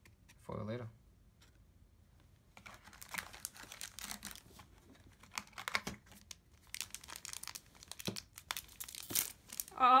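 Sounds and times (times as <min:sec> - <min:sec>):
foil pack crinkling: 0:02.6 - 0:09.8.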